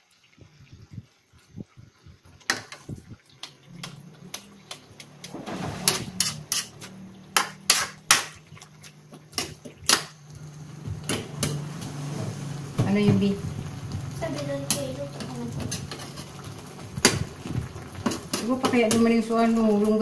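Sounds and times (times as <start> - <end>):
metal turner clanking in wok: 5.8 - 8.4.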